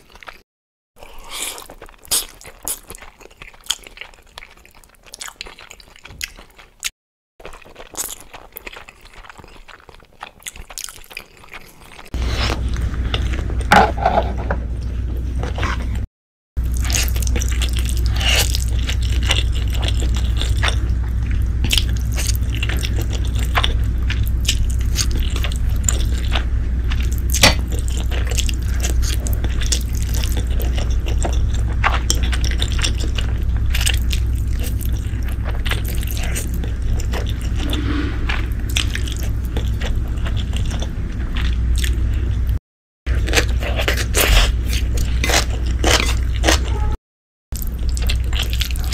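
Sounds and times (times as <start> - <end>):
slurping and chewing noodles: 1.0 - 13.7, 15.3 - 47.0, 47.6 - 48.9
steady low hum: 12.2 - 42.6.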